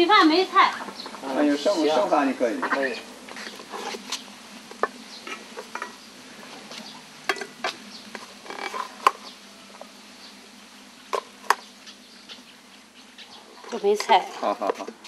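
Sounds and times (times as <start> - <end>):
rice paddle scraping metal pot: 3.4 - 9.4.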